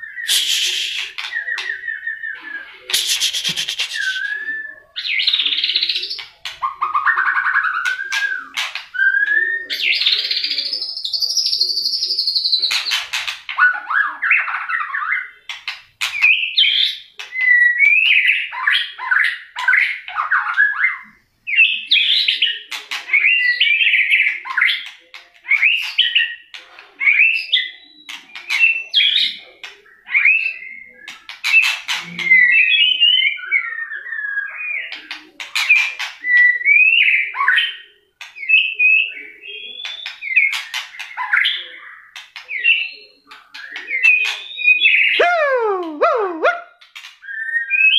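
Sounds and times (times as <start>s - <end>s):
bird singing whistled phrases: 0.0s - 5.4s, 42.6s - 47.9s
sharp bird clicks: 2.9s - 4.3s.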